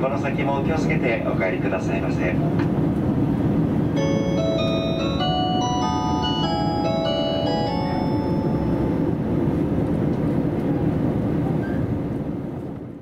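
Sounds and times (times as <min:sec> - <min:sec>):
diesel train rumble inside cabin: 0:00.0 - 0:13.0
onboard chime: 0:04.0 - 0:09.6.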